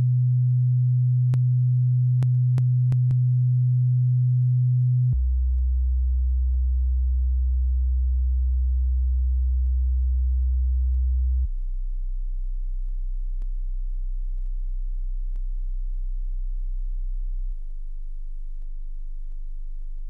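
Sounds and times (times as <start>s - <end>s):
low sine test tone: 0.0s - 20.0s.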